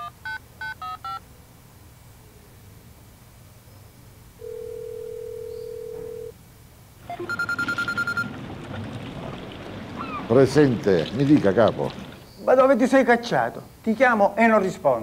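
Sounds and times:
mobile phone electronic ringtone: 0:00.0 - 0:01.2, 0:04.4 - 0:06.3, 0:07.1 - 0:08.3
faint outdoor background noise: 0:00.0 - 0:15.0
telephone ringback tone: 0:04.4 - 0:06.4, 0:07.1 - 0:08.3.

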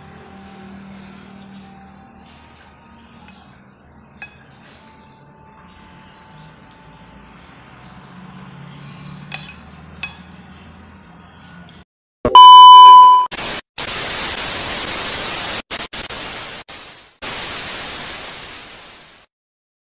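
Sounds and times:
high beep: 0:12.3 - 0:13.3
static hiss: 0:13.4 - 0:19.3.

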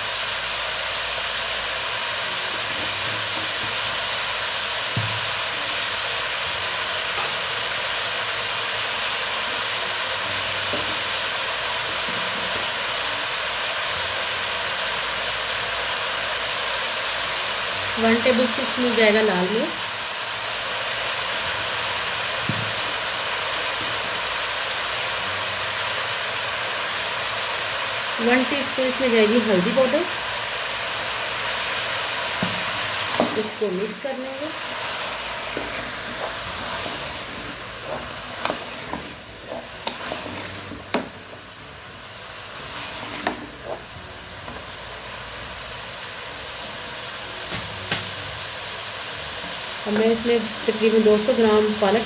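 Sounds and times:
vegetables sizzling in oil: 0:00.0 - 0:52.0
wooden spoon stirring vegetables: 0:02.4 - 0:03.9, 0:32.3 - 0:44.9.

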